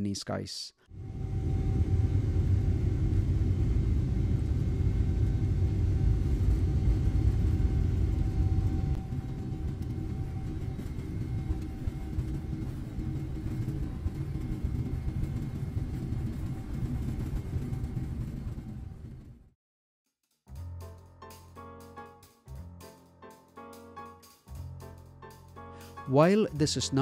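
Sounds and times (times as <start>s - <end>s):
faint jet engine whine: 0.9s - 19.5s
low rumble of wheels and airframe: 0.9s - 19.5s.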